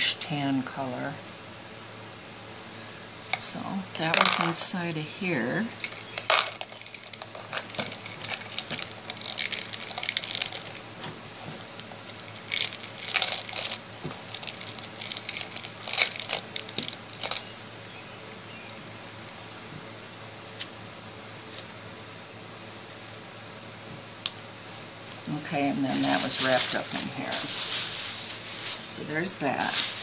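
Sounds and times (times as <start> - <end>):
fabric rustling and crinkling: 5.6 - 17.5, 25.2 - 30.0.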